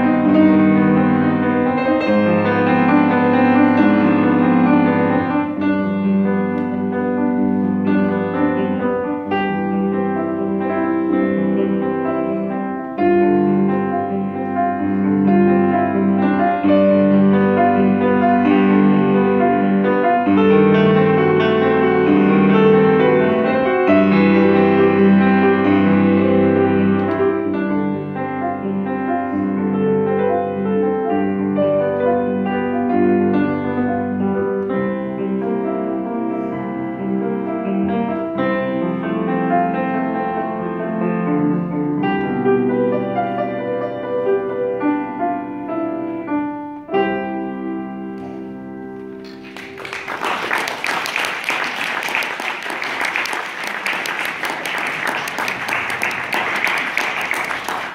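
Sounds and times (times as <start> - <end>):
piano duet: 0.0 - 57.9
audience applause: 49.2 - 57.9.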